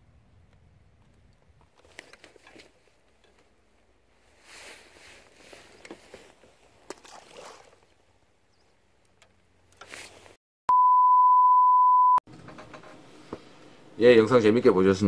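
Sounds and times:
test-tone beep: 10.7 - 12.2.

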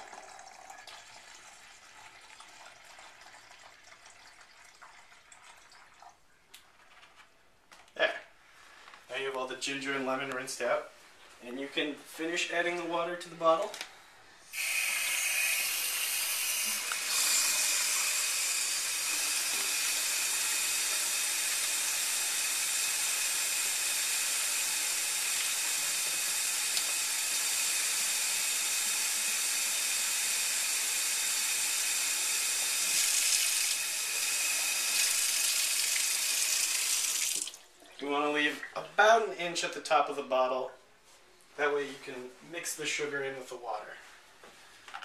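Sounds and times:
tap filling plastic bottle: 0.0 - 1.4, 25.4 - 27.1
water stream into metal sink: 0.0 - 6.2, 14.5 - 38.4.

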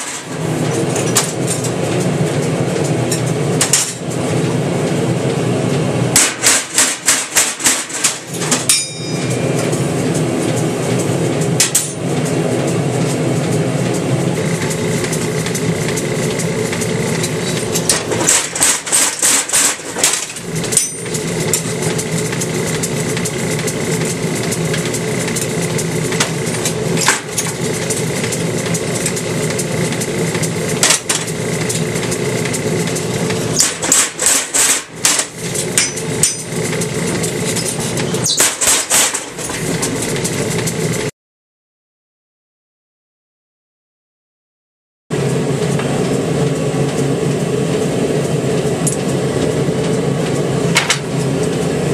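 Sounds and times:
power hammer blows on hot steel: 6.1 - 12.7, 13.4 - 41.0
power hammer humming: 13.4 - 38.2.

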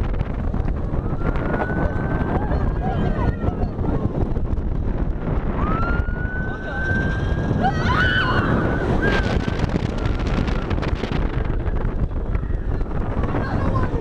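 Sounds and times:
wind rushing over microphone: 0.0 - 14.0
riders screaming: 5.6 - 10.6.

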